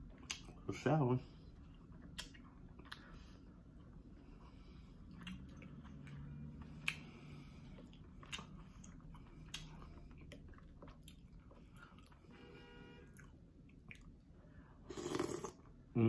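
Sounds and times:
close chewing: 1.5s - 12.3s.

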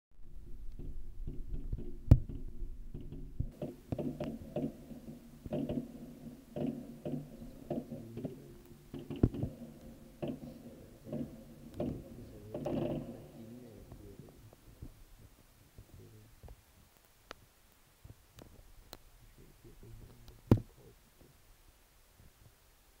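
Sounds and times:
low hum: 0.2s - 16.3s
fireworks bangs: 3.4s - 14.3s.

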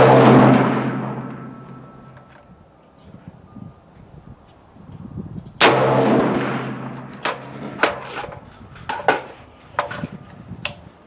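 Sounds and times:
rifle shot with echo: 0.0s - 2.2s, 5.6s - 8.1s.

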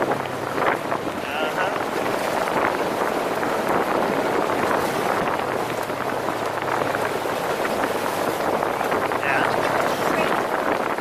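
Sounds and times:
wind noise on microphone: 0.0s - 11.0s.

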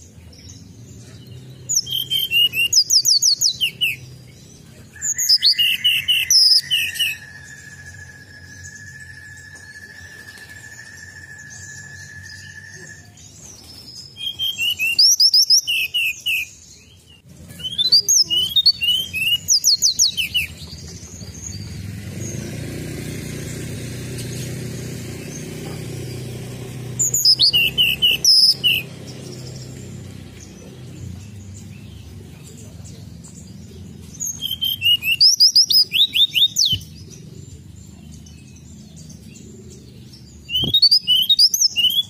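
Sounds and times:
bird singing whistled notes: 0.4s - 32.0s, 33.2s - 42.0s
thin whistle-like tone: 7.6s - 13.2s.

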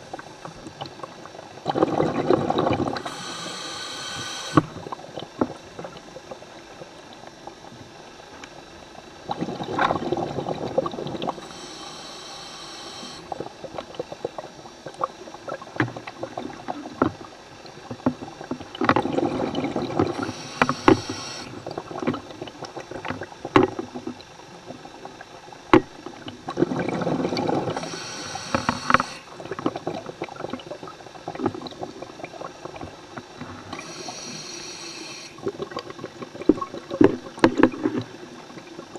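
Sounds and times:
exhaled air bubbling: 0.0s - 38.9s
diver inhaling through regulator: 3.0s - 4.9s, 11.3s - 13.5s, 20.1s - 21.6s, 27.5s - 29.4s, 33.7s - 35.4s.

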